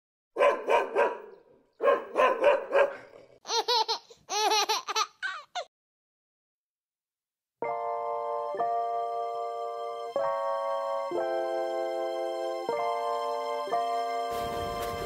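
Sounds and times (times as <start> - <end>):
dog barking: 0.4 - 3.4.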